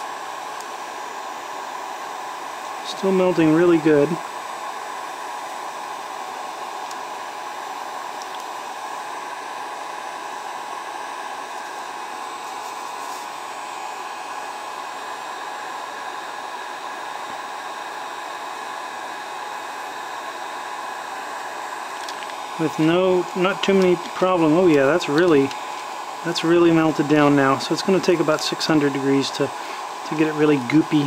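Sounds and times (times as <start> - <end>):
heat gun fan rushing: 0.0 - 31.0.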